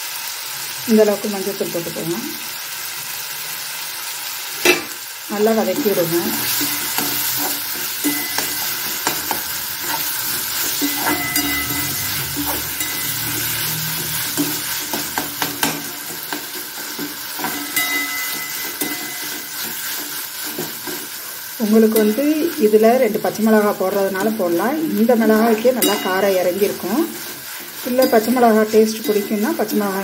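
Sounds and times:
food sizzling in oil: 0.0s - 30.0s
spatula scraping pan: 5.7s - 22.6s, 25.0s - 30.0s.

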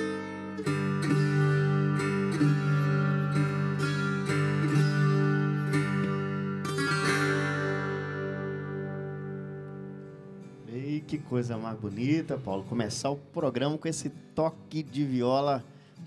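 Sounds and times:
plucked guitar melody: 0.0s - 16.0s.

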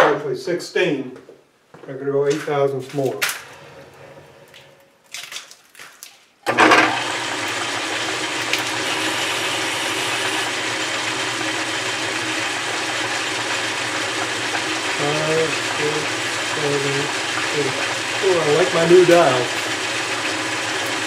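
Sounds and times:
metal lathe whirring: 6.5s - 21.0s.

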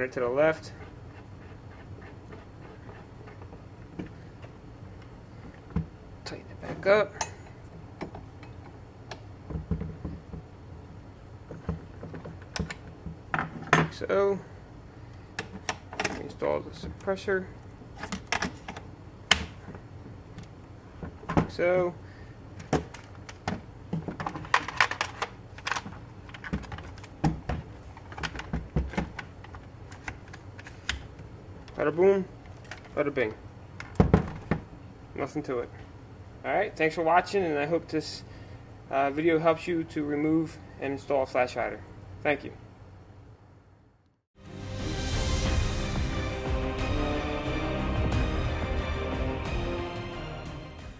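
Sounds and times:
plastic parts clicking and latching: 22.6s - 31.8s.

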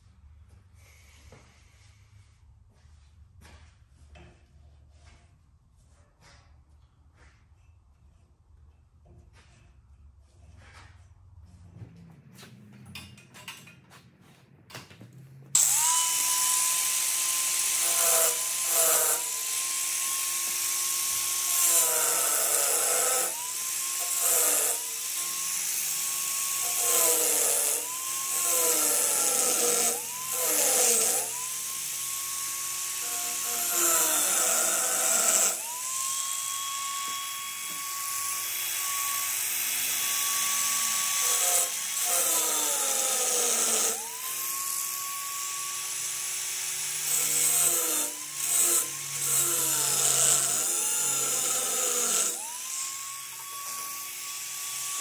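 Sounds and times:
electric grinder on metal: 15.5s - 55.0s.

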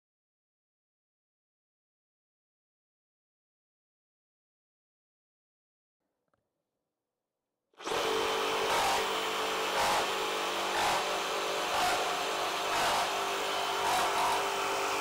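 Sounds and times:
reciprocating saw cutting wood: 7.8s - 15.0s.

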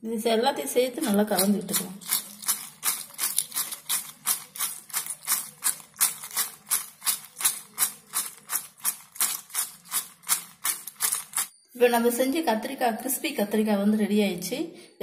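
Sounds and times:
fried slices rattling in glass bowl: 1.0s - 11.6s.

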